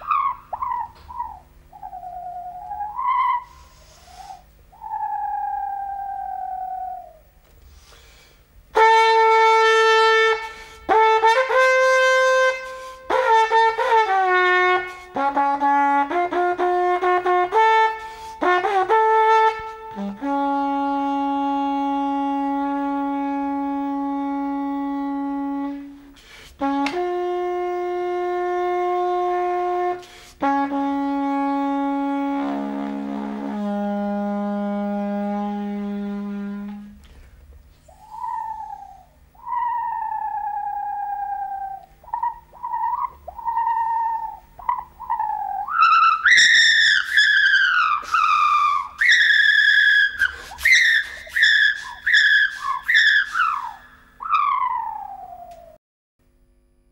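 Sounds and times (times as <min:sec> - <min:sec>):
homemade wind instrument notes: 0:08.8 - 0:37.1, 0:37.8 - 0:54.5.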